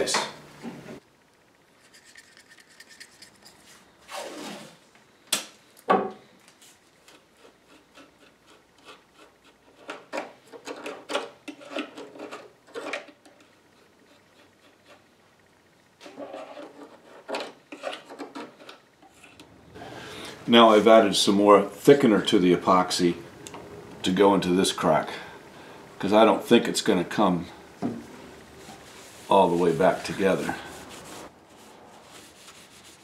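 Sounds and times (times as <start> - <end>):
stick scraping mixing epoxy: 7.1 - 15.1, 16.0 - 19.4, 28.6 - 31.3.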